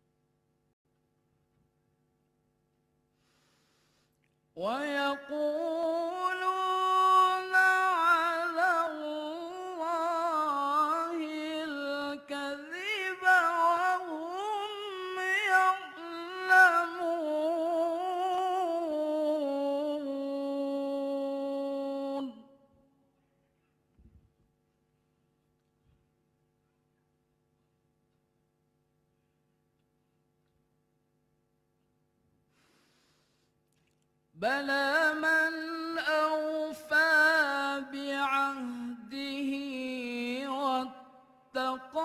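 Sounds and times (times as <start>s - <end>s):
man reciting in melodic chant: 4.6s - 22.5s, 34.4s - 42.0s.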